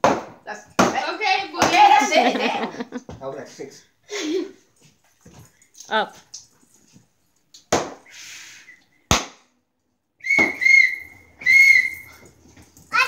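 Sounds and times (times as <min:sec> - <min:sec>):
stick whacking cardboard: 0:00.0 - 0:01.9, 0:07.7 - 0:08.0, 0:09.1 - 0:09.4
shrill high-pitched tone: 0:10.2 - 0:12.3.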